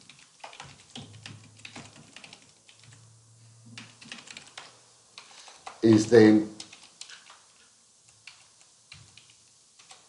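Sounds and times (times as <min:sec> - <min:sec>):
computer keyboard typing: 0:00.0 - 0:03.0, 0:03.7 - 0:10.0.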